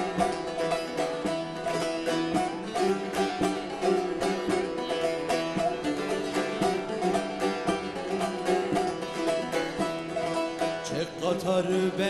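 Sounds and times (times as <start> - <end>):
strummed saz folk music: 0.0 - 12.0.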